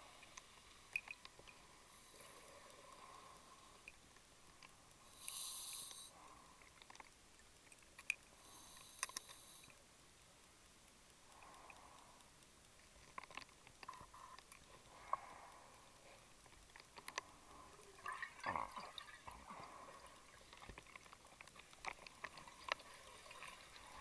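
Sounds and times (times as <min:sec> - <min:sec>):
breathing gear gas hisses: 0:05.1 - 0:06.2
bubbles gurgling: 0:17.8 - 0:20.4.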